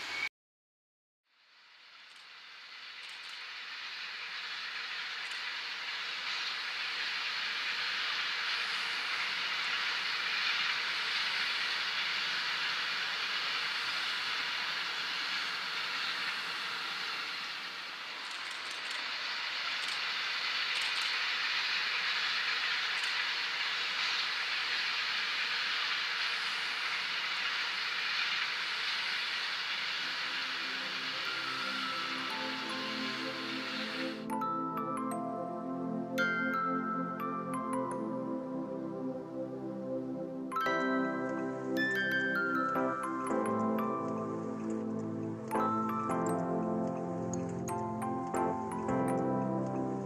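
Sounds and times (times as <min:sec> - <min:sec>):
faint clicks: 0:03.0 - 0:03.5, 0:05.2 - 0:05.6, 0:19.8 - 0:21.3, 0:22.9 - 0:23.3
train wheels rushing on rail: 0:03.0 - 0:34.3.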